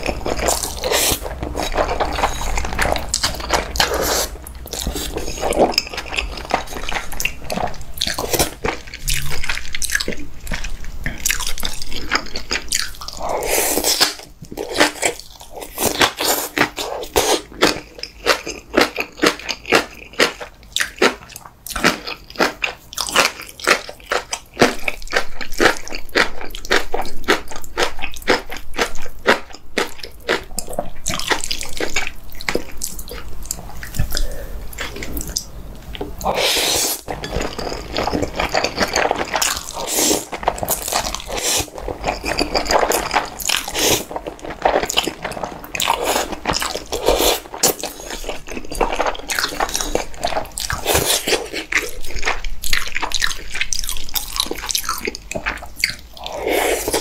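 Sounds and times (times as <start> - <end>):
noodle slurping: 0.0 - 9.7, 36.2 - 52.0, 56.2 - 57.0
wet chewing and crunching: 0.0 - 57.0.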